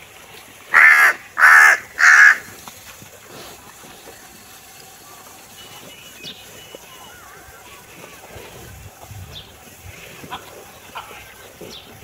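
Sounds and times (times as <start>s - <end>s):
crow cawing: 0.7s - 2.5s.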